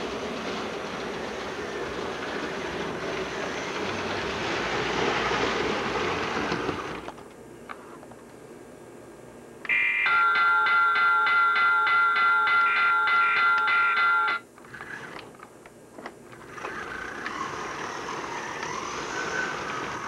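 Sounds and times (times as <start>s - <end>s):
model train rolling rumble: 0.0s - 7.2s, 16.3s - 20.0s.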